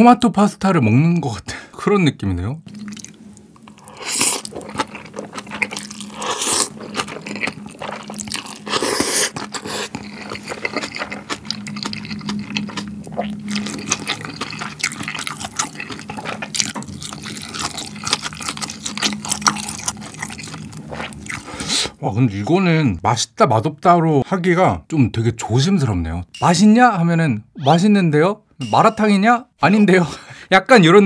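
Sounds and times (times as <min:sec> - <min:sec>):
wet chewing with small clicks: 0:02.7 - 0:22.0
slurping noodles: 0:02.8 - 0:22.0.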